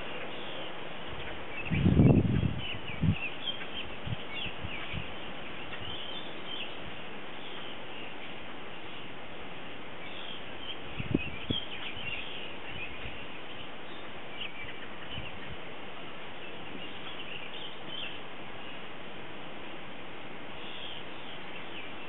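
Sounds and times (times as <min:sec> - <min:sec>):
small birds chirping: 0:00.0 - 0:19.0, 0:20.4 - 0:22.0
steady hiss: 0:00.0 - 0:22.0.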